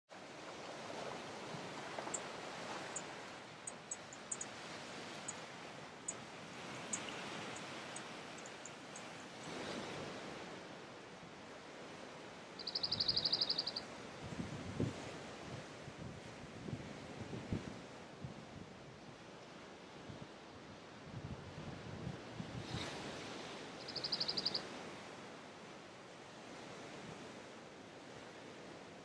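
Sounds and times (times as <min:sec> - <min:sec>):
bird singing a dry trill: 0:02.9 - 0:04.6, 0:06.1 - 0:09.1, 0:12.6 - 0:13.9, 0:23.8 - 0:24.7.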